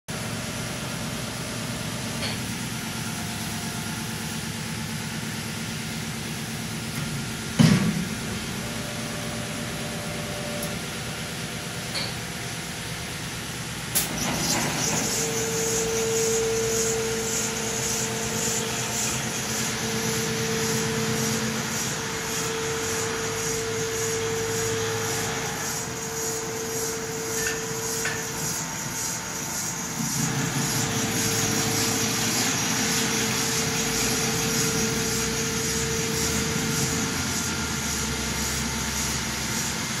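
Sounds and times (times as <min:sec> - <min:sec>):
stone-polishing machine grinding: 0:14.2 - 0:40.0.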